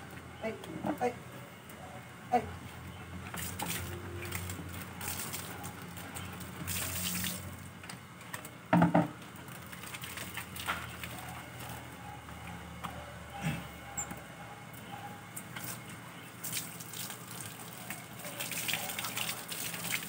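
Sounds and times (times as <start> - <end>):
water running and splashing: 3.3 - 7.7, 9.4 - 11.3, 16.4 - 20.0.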